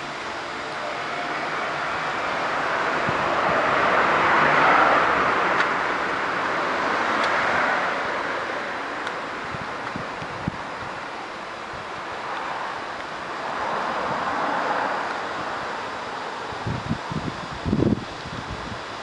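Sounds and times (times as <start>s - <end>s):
vehicle passing by: 0.7s - 9.0s, 13.4s - 16.5s.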